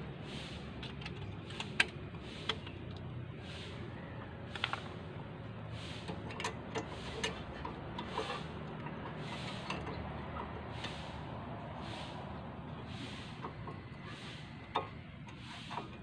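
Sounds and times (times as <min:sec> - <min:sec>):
metal clicks and rubbing: 0:06.0 - 0:11.0, 0:12.9 - 0:16.0.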